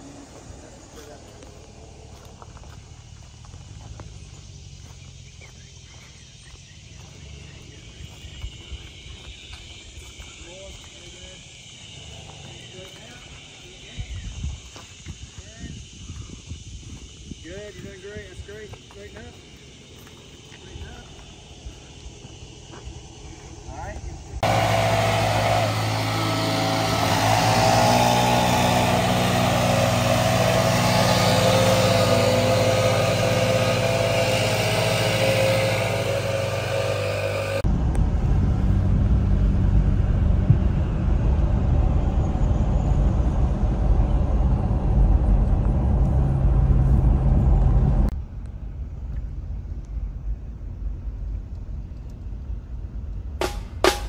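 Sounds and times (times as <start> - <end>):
pickup truck engine running: 24.4 - 48.1
road rumble inside car: 31.0 - 53.3.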